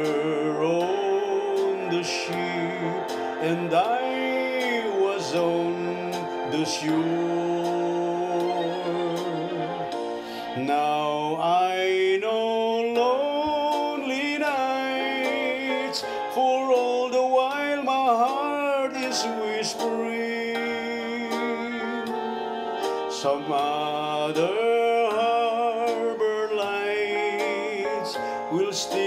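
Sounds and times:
gliding wavering lead melody: 0:00.0 - 0:11.0
sustained backing notes: 0:00.0 - 0:29.0.

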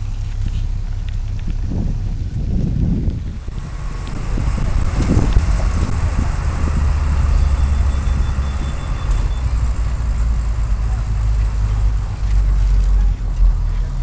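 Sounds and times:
vehicle engine and road rumble: 0:00.0 - 0:14.0.

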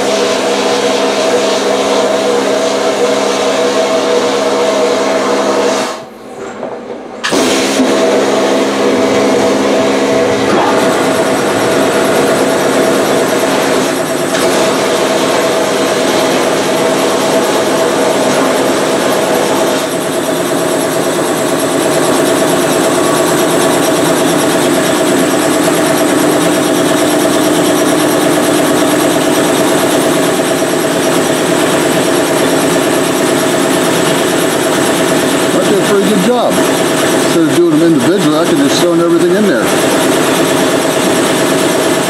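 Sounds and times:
machine hum: 0:00.0 - 0:42.0.

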